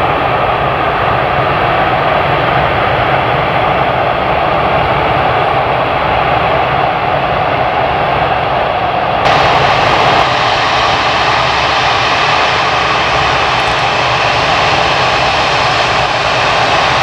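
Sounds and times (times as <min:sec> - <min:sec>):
jet engines rushing: 0:00.0 - 0:17.0.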